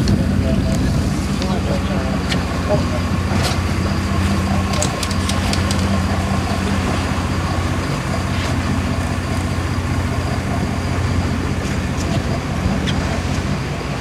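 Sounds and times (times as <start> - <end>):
boat engine droning: 0.0 - 14.0
wind and water hiss: 0.0 - 14.0.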